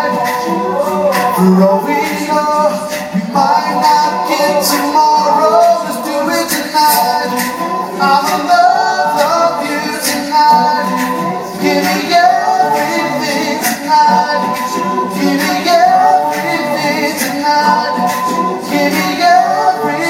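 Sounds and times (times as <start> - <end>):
male a cappella group singing: 0.0 - 20.0.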